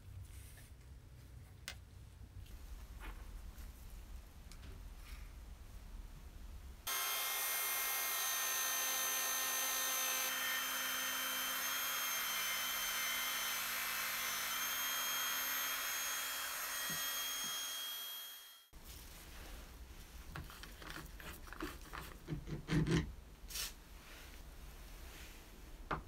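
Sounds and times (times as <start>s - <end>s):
rotary tool high whine: 6.9s - 18.7s.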